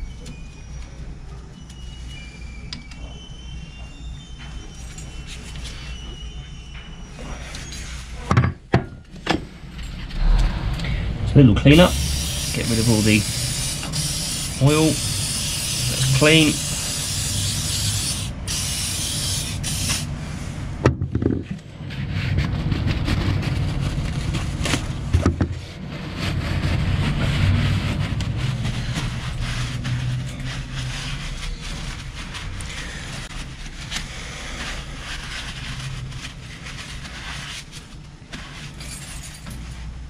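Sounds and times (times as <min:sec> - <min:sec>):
steady low rumble: 0:09.4 - 0:15.8
rag rubbing on metal: 0:11.7 - 0:20.1.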